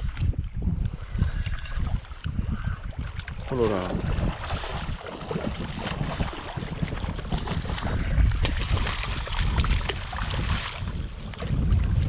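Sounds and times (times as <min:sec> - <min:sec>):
wind buffeting microphone: 0:00.0 - 0:12.0
fish thrashing and splashing in water: 0:02.9 - 0:12.0.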